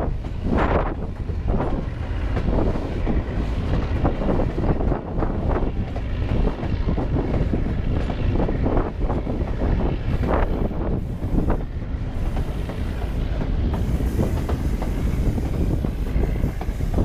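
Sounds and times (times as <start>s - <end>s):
train running rumble: 0.0s - 17.0s
wind buffeting microphone: 0.0s - 17.0s.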